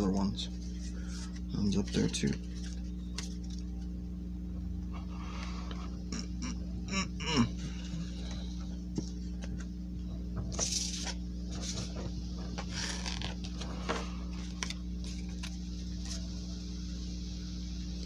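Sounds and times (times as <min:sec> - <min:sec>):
steady low hum: 0:00.0 - 0:18.0
cards and packaging handled: 0:10.5 - 0:16.3.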